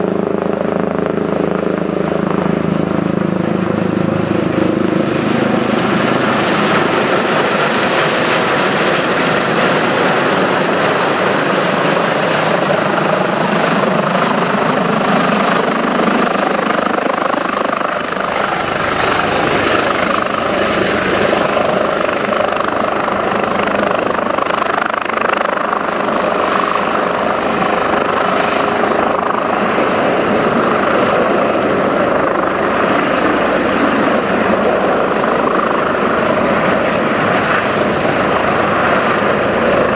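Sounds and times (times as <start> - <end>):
helicopter hovering: 0.0 - 39.9
high turbine whine: 0.0 - 39.9.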